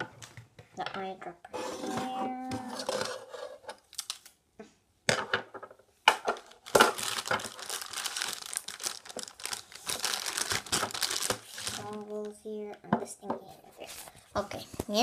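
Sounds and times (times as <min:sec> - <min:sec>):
packaging crinkling and rustling: 0:02.7 - 0:04.4, 0:06.2 - 0:12.4
plastic parts knocking: 0:05.1 - 0:07.7.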